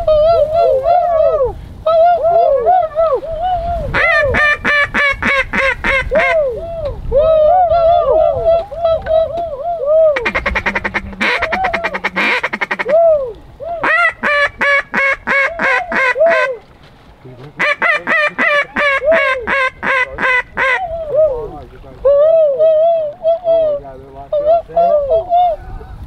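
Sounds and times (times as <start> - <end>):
duck call quacks and chatter: 3.9 - 6.5, 10.2 - 13.1, 13.8 - 16.6, 17.6 - 21.0.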